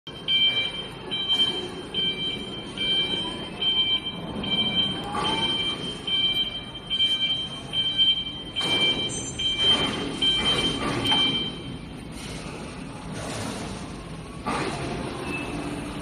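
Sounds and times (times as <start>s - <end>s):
forklift warning beeps: 0.1s - 12.0s
forklift drive rumble: 0.1s - 16.0s.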